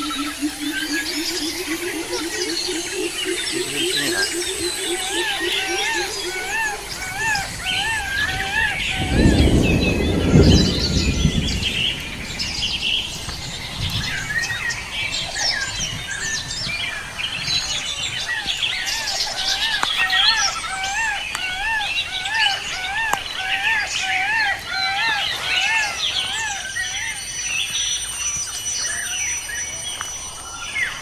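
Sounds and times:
birds chirping and calling: 0.0s - 31.0s
low rumble: 6.0s - 16.7s.

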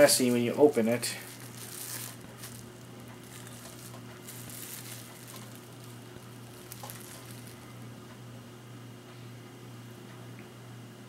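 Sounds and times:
plastic wrapper crinkling: 0.0s - 7.7s
steady low hum: 0.0s - 11.0s.

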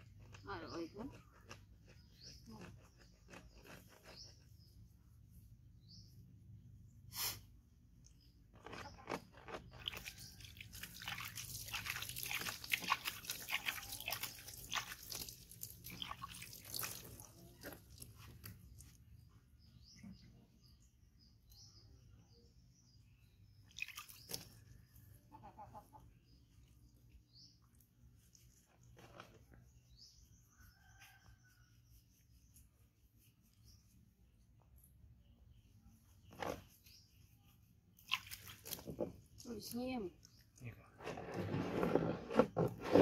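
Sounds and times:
hand splashing in water: 38.0s - 38.8s.

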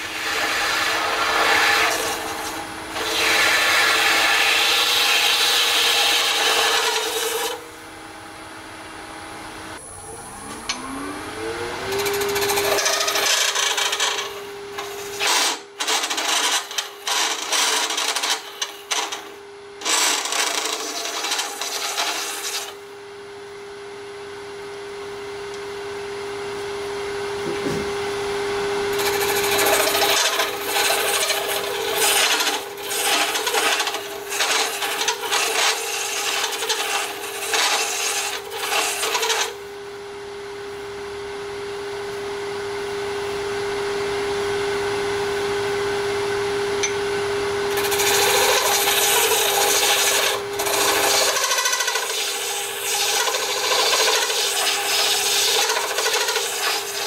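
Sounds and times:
tool scraping on lathe: 0.0s - 7.6s, 11.9s - 22.8s, 28.9s - 39.6s, 47.7s - 57.0s
lathe humming: 0.0s - 7.8s, 9.3s - 22.8s, 28.8s - 39.6s, 46.8s - 57.0s.

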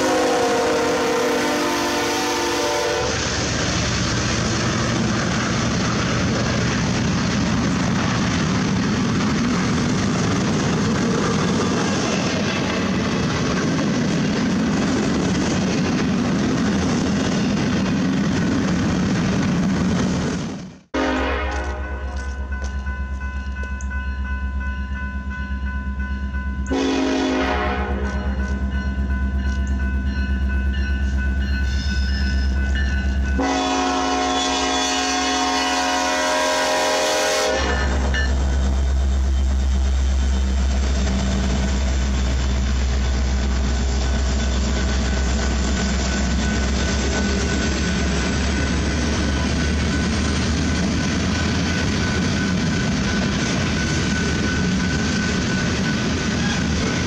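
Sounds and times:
locomotive horn: 0.0s - 3.3s, 20.9s - 22.5s, 26.7s - 28.6s, 33.4s - 38.3s, 56.3s - 57.0s
diesel locomotives rumbling: 0.0s - 57.0s
steel wheels on rails: 2.3s - 36.3s, 36.9s - 57.0s.

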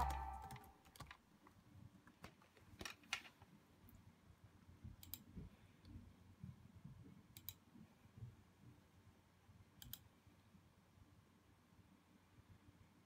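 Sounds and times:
mouse button double-clicks: 0.0s - 0.7s.

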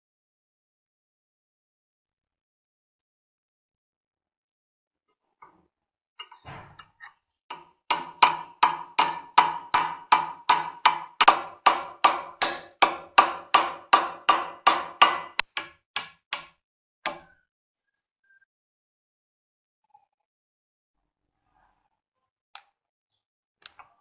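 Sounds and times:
hammer tapping steel punch: 6.2s - 17.3s.

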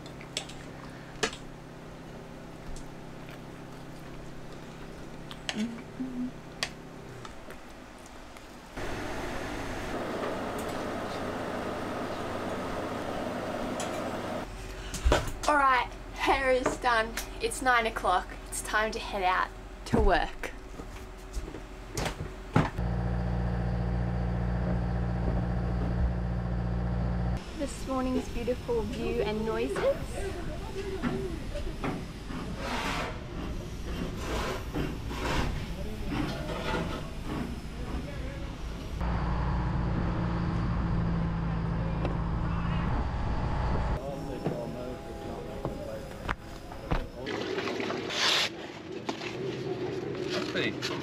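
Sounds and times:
steady low hum: 0.0s - 47.3s
person humming: 5.5s - 6.4s
low engine drone: 8.8s - 14.6s, 22.8s - 32.5s, 37.1s - 47.3s.

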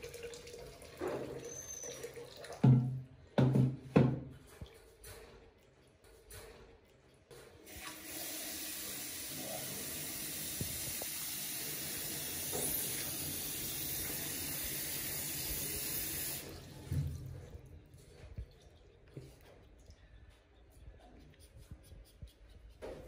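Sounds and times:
water running: 0.0s - 5.0s, 7.6s - 19.4s.

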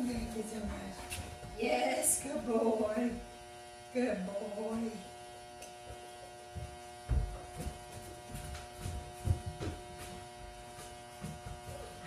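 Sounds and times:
soft low thumps: 0.0s - 1.8s, 6.4s - 12.0s
steady electrical buzz: 0.0s - 12.0s.

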